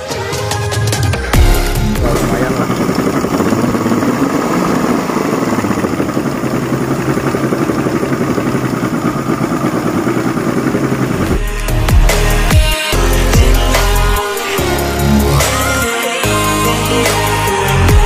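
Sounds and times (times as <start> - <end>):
outboard motor running: 1.3 - 18.0.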